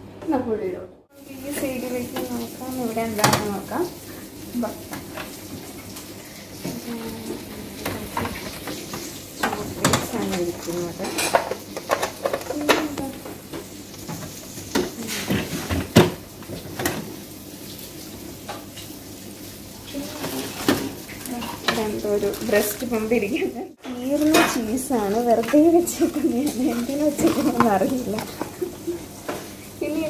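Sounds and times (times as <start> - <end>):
containers knocking and clinking: 7.8 - 17.0, 26.4 - 29.4.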